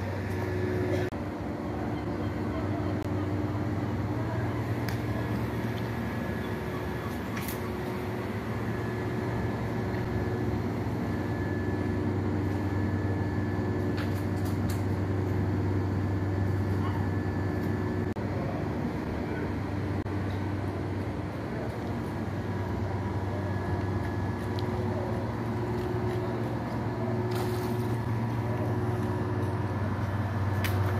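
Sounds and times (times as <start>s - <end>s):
faint high whine: 0.0s - 14.2s
machinery droning: 0.0s - 30.9s.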